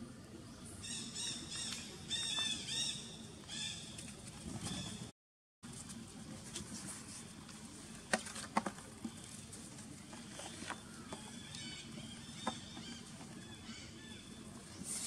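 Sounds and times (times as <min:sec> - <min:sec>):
rustling of dry leaves: 0:05.6 - 0:15.0.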